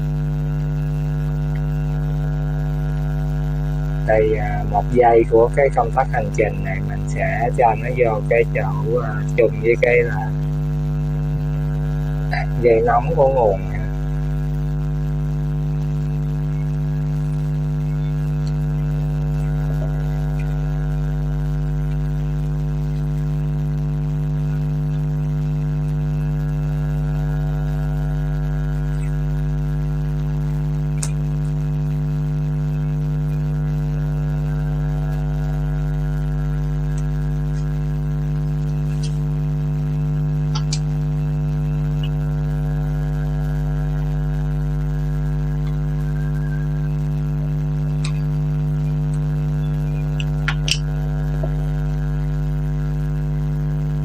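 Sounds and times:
electrical mains hum: 0.0 - 54.0
faint clicks of wires: 30.9 - 31.2, 40.5 - 41.0.

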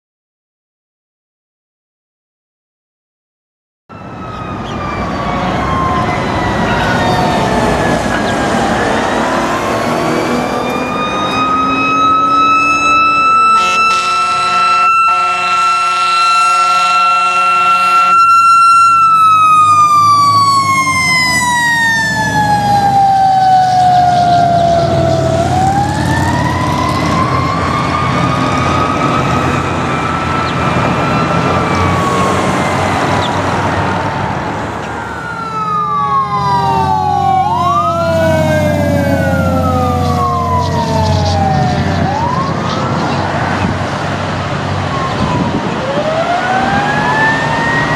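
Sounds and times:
fire engine siren wailing: 3.9 - 47.9
horn short blasts: 13.6 - 18.1.

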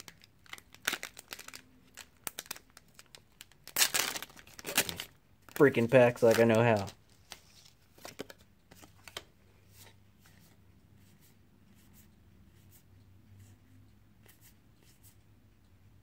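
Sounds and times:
low steady hum: 0.0 - 16.0
cards being flipped: 6.2 - 9.9.

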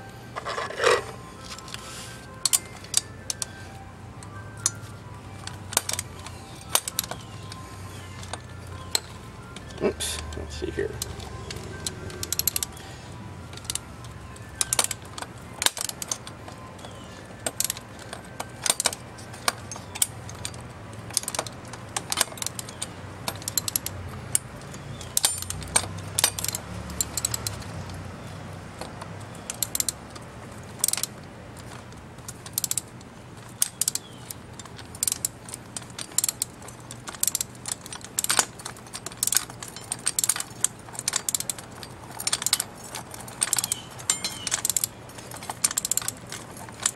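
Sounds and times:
metal tools clinking: 0.3 - 46.9
ratchet wrench clicking: 4.6 - 12.8, 13.5 - 46.9.

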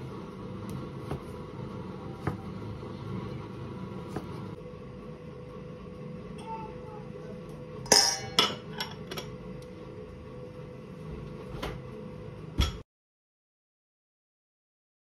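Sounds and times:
spoon clinking on metal bowl: 7.9 - 9.3.

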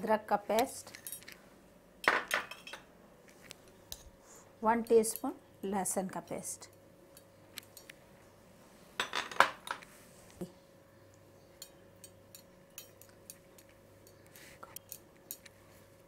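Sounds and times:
kitchenware clinking and knocking: 2.0 - 2.8, 9.0 - 9.8.

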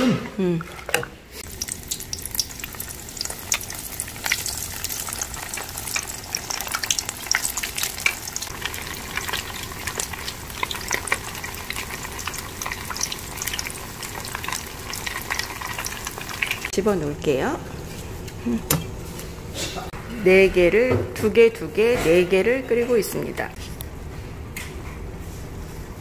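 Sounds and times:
food sizzling: 1.2 - 18.0.

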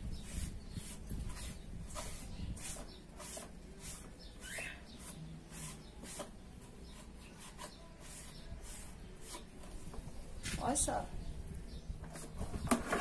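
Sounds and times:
sponge scratching fan blades: 0.0 - 9.8.

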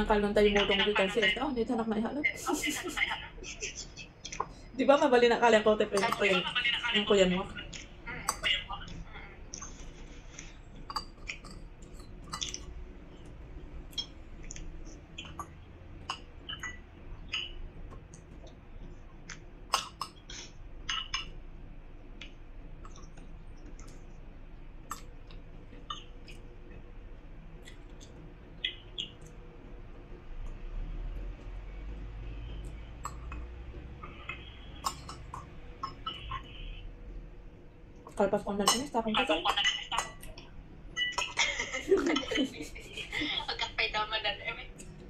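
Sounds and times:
person chewing: 24.8 - 26.8
cutlery clinking against bowl: 34.2 - 36.2, 38.6 - 39.0.

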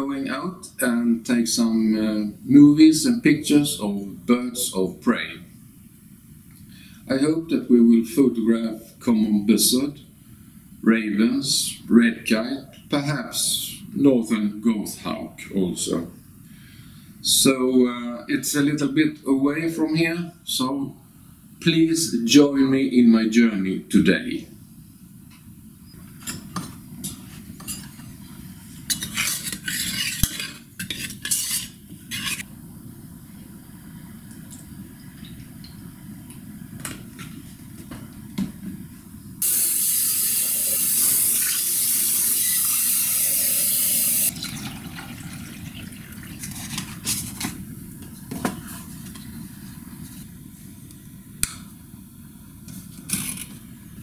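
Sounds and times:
liquid pouring: 43.0 - 46.7.

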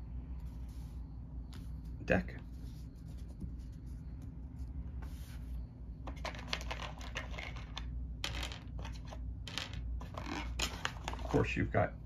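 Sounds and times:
low steady hum: 0.0 - 12.0
cards being handled on paper: 0.4 - 7.8.

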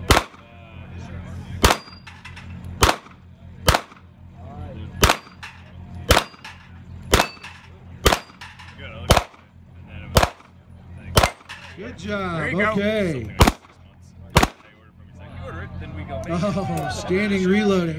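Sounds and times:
pistol shots: 0.0 - 0.4, 1.6 - 2.1, 2.8 - 4.0, 5.0 - 5.4, 6.1 - 6.4, 7.1 - 8.4, 9.1 - 9.4, 10.2 - 10.5, 11.2 - 11.5, 13.4 - 13.8, 14.4 - 14.7.

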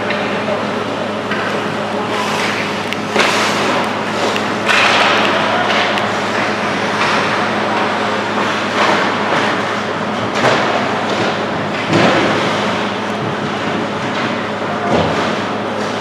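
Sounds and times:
steady low hum: 0.0 - 16.0
hockey sticks and puck clacking: 1.3 - 15.5
skates rushing on ice: 2.1 - 9.6.

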